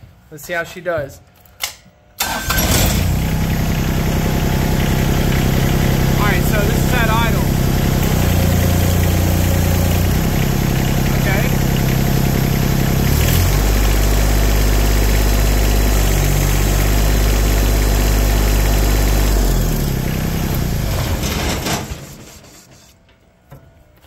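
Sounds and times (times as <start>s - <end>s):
tractor engine running: 2.2s - 22.5s.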